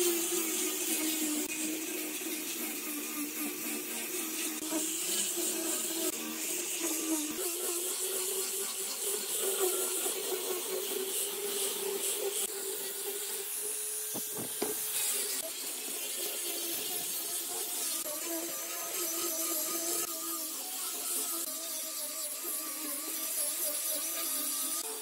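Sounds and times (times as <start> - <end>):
disc sanding wood hiss: 8.2 - 25.0
angle grinder whine: 11.2 - 17.8.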